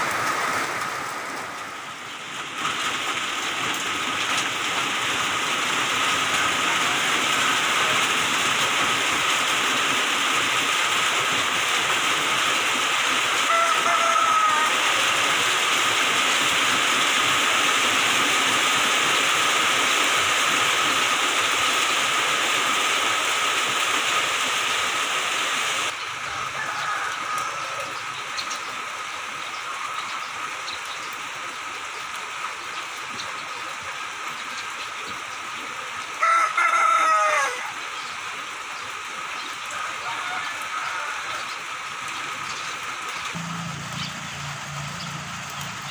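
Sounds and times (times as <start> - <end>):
heavy rain falling: 0.0 - 45.9
rooster crowing: 13.4 - 15.2, 26.2 - 28.0, 36.2 - 37.8, 39.7 - 41.6.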